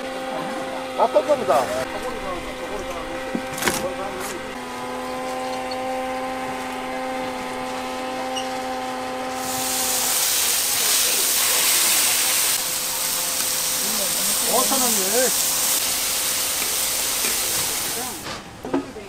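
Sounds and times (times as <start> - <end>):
steady machine hum: 0.0 - 18.6
loud steady hiss: 9.3 - 18.4.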